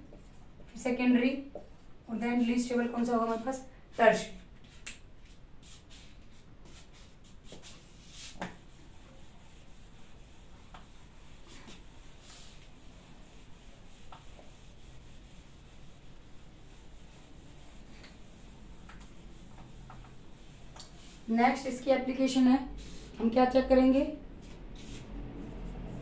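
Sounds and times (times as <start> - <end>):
eraser rubbing whiteboard: 2.5 - 23.6, 24.4 - 26.0.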